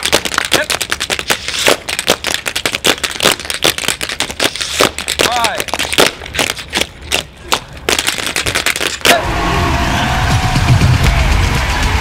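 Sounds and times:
tap dancing on concrete: 0.0s - 9.1s.

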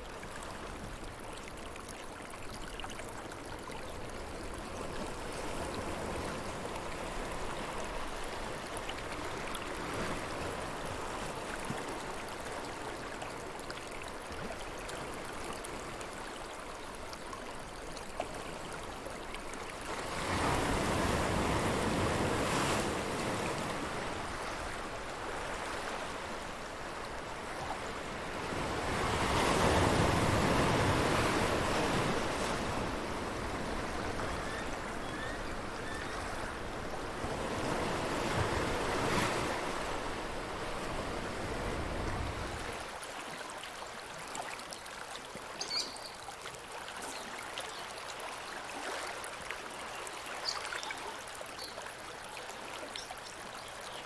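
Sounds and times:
ocean surf on rocks: 20.0s - 42.8s.

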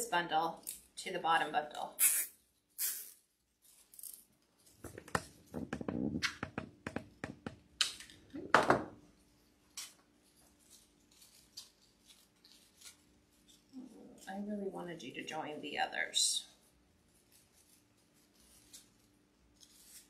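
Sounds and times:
artificial flowers rustling: 2.0s - 6.2s, 9.1s - 20.0s.

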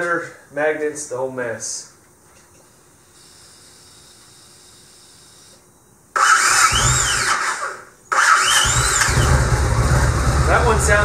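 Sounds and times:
electric starter whining: 3.2s - 11.0s
engine cranking: 6.2s - 11.0s.

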